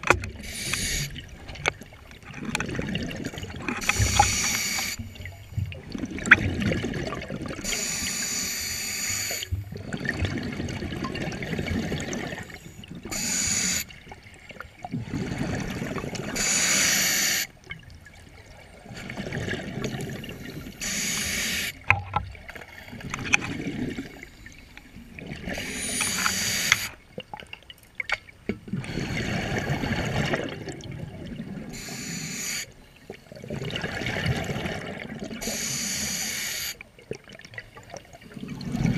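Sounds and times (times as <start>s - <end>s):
exhaled bubbles underwater: 0.0s - 38.9s
regulator breathing hiss: 0.4s - 1.2s, 3.8s - 5.0s, 7.6s - 9.5s, 13.1s - 13.9s, 16.4s - 17.5s, 20.8s - 21.8s, 25.6s - 27.0s, 31.8s - 32.8s, 35.4s - 36.8s.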